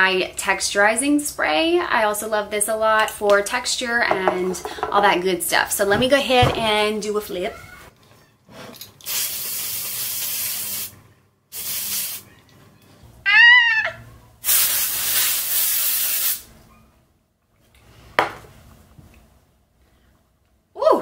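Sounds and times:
aerosol spray hissing: 9.1 - 10.9, 11.5 - 12.2, 14.4 - 16.5.

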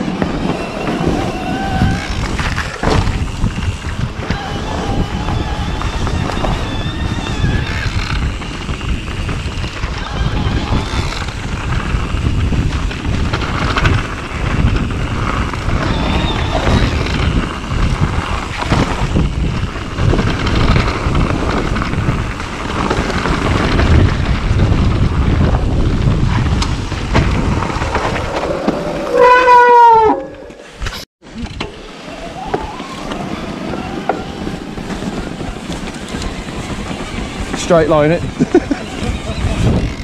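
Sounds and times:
bike rattling: 0.0 - 40.0
bike tyre rumble: 0.0 - 40.0
wind noise on microphone: 0.0 - 40.0
brake squeal: 0.2 - 11.5, 14.9 - 17.7, 27.8 - 40.0.

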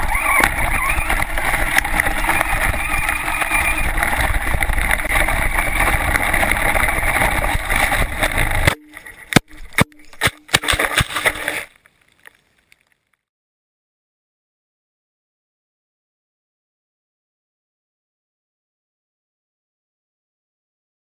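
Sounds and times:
sharp knocks: 8.6 - 11.3.

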